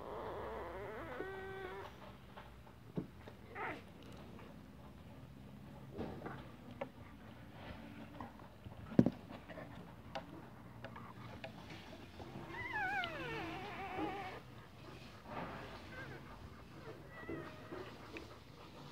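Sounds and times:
puppy whining: 0.0 - 5.0, 9.5 - 18.9.

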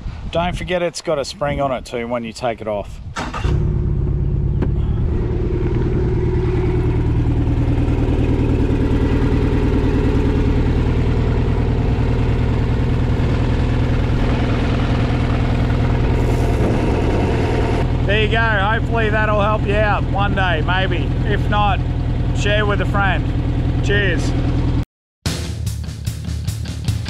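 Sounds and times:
outboard motor idling: 3.6 - 24.8.

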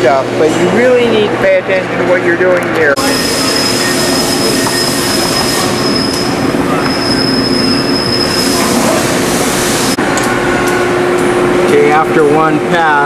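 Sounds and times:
thin high whine: 3.0 - 13.0.

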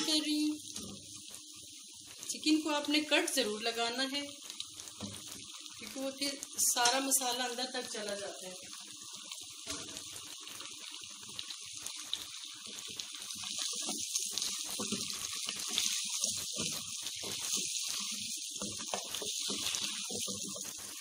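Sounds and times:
chicken sizzling in hot oil: 0.0 - 21.0
wooden spatula scraping: 13.5 - 21.0.

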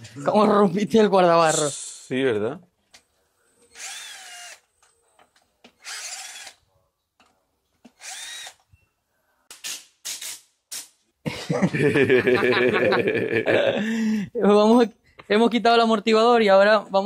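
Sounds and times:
power screwdriver spinning: 3.7 - 4.8, 5.7 - 6.6, 7.8 - 8.7.

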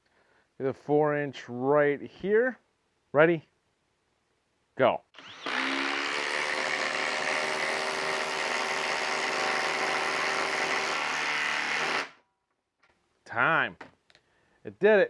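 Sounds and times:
impact driver hammering screw into wood: 5.2 - 12.2.

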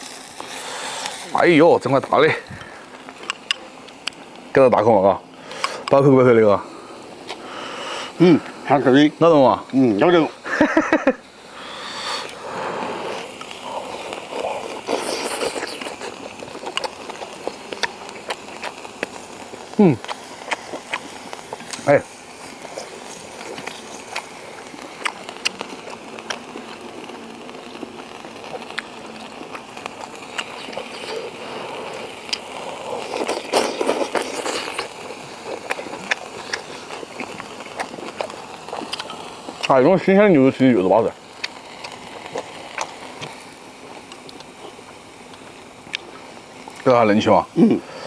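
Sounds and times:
steady low hiss: 0.0 - 48.0
person chewing: 2.6 - 4.2, 11.8 - 21.9, 22.6 - 39.7, 41.4 - 46.2
eating noise: 11.5 - 39.8, 41.1 - 46.9.

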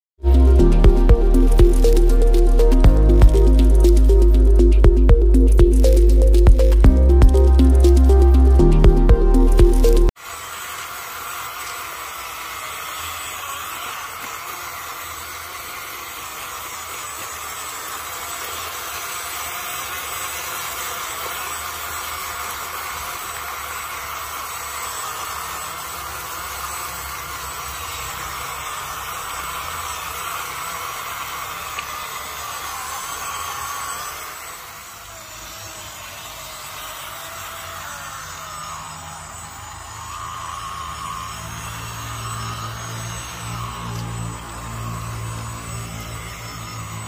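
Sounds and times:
electric motor and gears whining: 0.2 - 47.0
hiss: 10.2 - 47.0.

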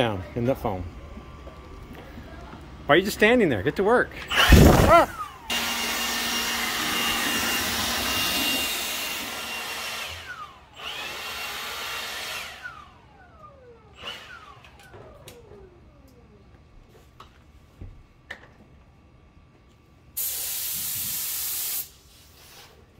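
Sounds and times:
motor winding down: 4.1 - 16.6
leaf blower running: 4.1 - 17.0.

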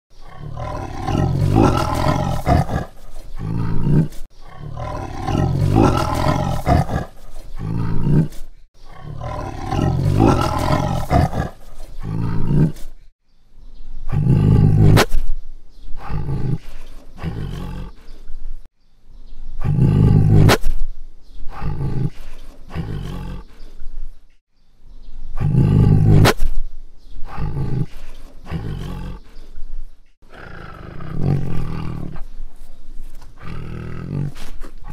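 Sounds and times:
tiger roaring: 0.2 - 12.9, 14.1 - 15.0, 17.2 - 18.0, 19.6 - 20.6, 21.5 - 23.5, 25.4 - 26.3, 30.3 - 32.2.

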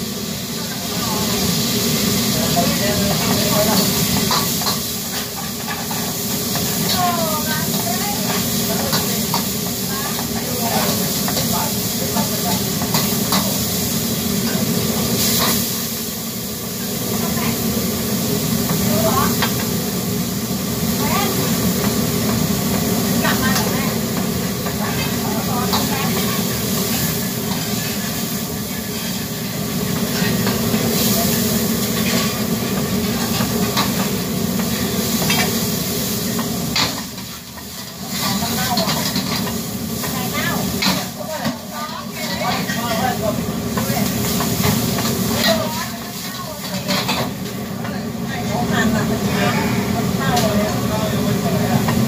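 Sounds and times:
food sizzling in a wok: 0.0 - 52.0
steam hissing: 0.0 - 52.0
wok burner rushing: 0.0 - 52.0
ladle scraping wok: 21.2 - 48.0, 48.8 - 50.8.

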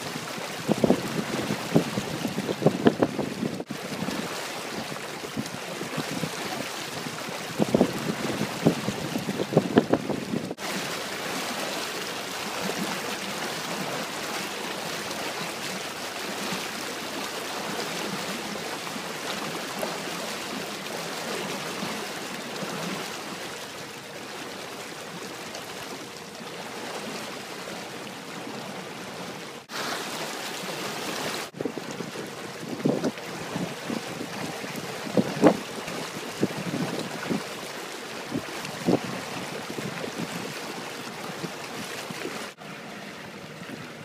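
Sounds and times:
water rushing past boat: 0.0 - 44.0
wind buffeting microphone: 0.4 - 10.6, 31.5 - 37.5, 38.3 - 42.3.

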